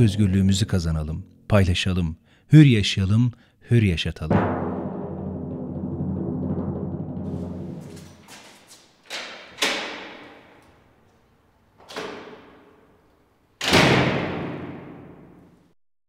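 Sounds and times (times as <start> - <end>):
cinematic hits ringing out: 4.3 - 8.2
deep boom: 4.3 - 8.2.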